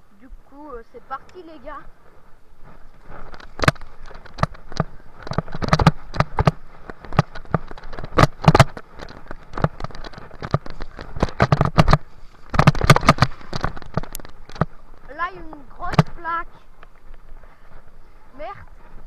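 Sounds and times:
low rumble of tyres on trail: 0:00.0 - 0:19.0
mountain bike rattling and clacking: 0:02.6 - 0:19.0.

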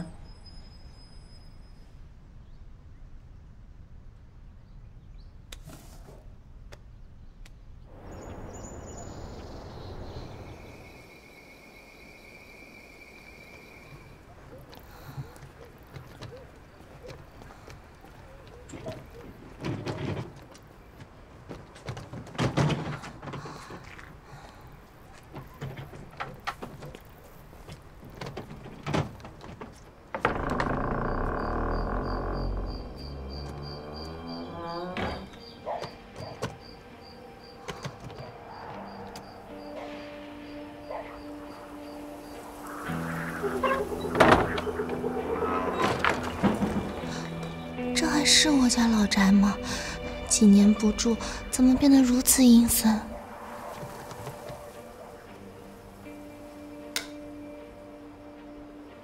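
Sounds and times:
outdoor evening ambience: 0:00.0 - 0:59.0
cricket chirping: 0:08.0 - 0:15.4, 0:30.5 - 0:47.8
high insect trill: 0:30.2 - 0:35.6
low rumbling drone: 0:30.2 - 0:35.6, 0:39.3 - 0:58.0.

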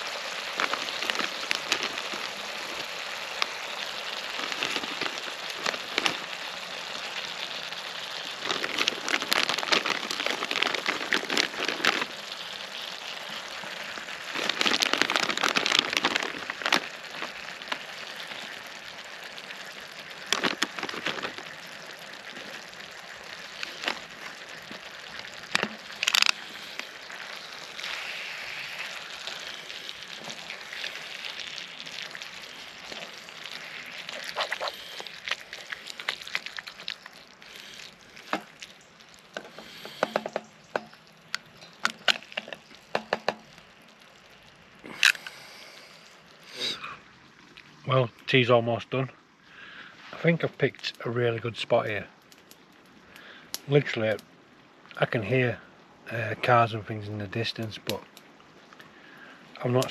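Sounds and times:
food sizzling in a pan: 0:00.0 - 0:48.0
sharp crack: 0:20.2 - 0:21.5, 0:25.4 - 0:38.6.

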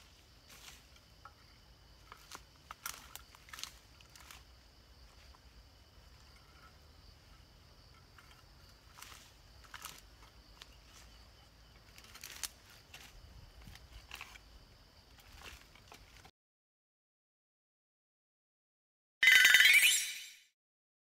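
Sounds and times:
weeds rustling and snapping: 0:00.0 - 0:01.2, 0:02.0 - 0:05.4, 0:08.3 - 0:14.5, 0:15.1 - 0:16.3
high insect drone: 0:00.0 - 0:16.2.

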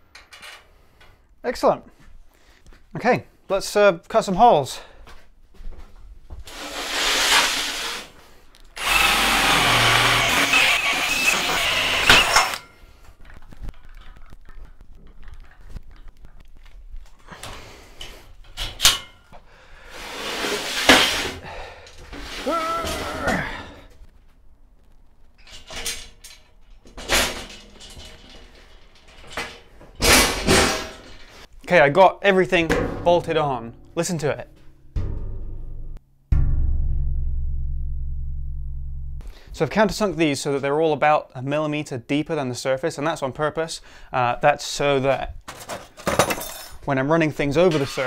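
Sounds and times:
cordless drill boring into steel: 0:08.8 - 0:12.6
metal clunks: 0:32.7 - 0:39.3
sharp knock: 0:35.0 - 0:35.6, 0:36.3 - 0:39.3.

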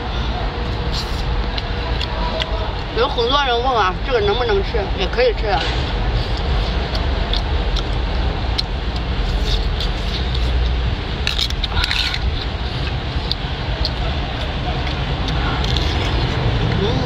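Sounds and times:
low rumbling background noise: 0:00.0 - 0:17.0.

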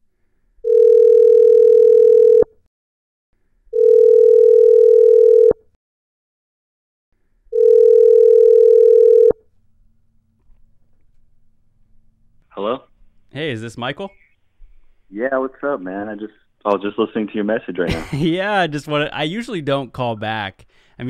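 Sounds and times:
phone ringing tone beeps: 0:00.6 - 0:02.5, 0:03.7 - 0:05.7, 0:07.5 - 0:09.4.

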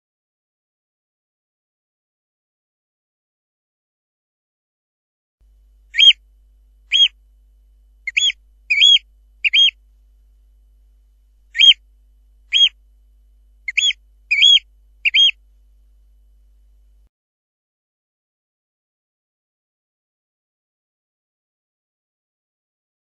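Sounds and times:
bird piping calls: 0:06.0 - 0:06.2, 0:06.9 - 0:07.2, 0:08.1 - 0:09.8, 0:11.5 - 0:11.8, 0:12.5 - 0:12.8, 0:13.7 - 0:15.4.

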